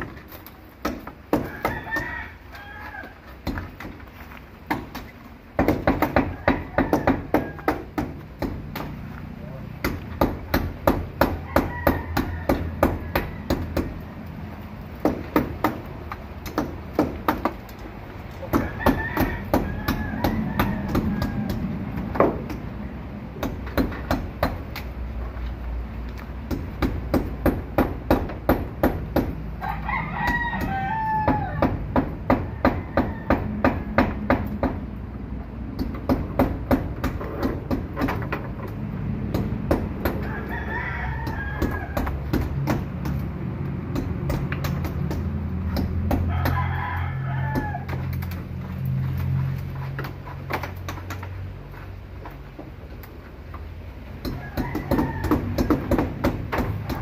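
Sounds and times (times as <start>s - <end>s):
sharp evenly spaced knocks: 0.0s - 2.1s, 3.3s - 9.1s, 9.7s - 14.0s, 14.9s - 22.7s, 23.3s - 25.0s, 26.3s - 29.5s, 30.2s - 35.0s, 35.7s - 40.5s, 41.2s - 46.6s, 53.4s - 57.0s
rooster crowing: 1.4s - 3.4s, 6.1s - 8.0s, 11.3s - 13.9s, 18.5s - 21.9s, 29.6s - 31.8s, 32.4s - 34.2s, 40.0s - 42.3s, 46.1s - 48.4s, 54.2s - 56.2s.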